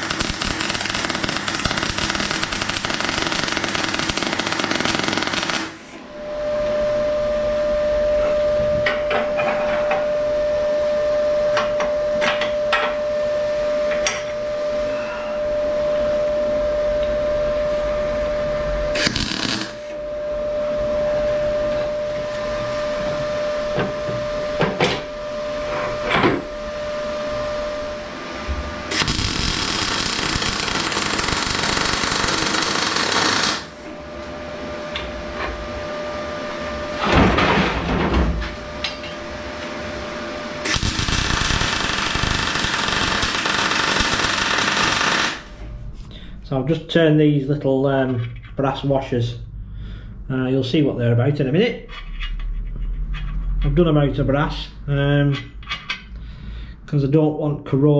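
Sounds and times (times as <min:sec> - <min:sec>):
arc welding crackling and hissing: 0:00.0 - 0:06.0, 0:18.9 - 0:20.0, 0:28.9 - 0:34.0, 0:40.6 - 0:45.7
machine hum: 0:00.0 - 0:50.8.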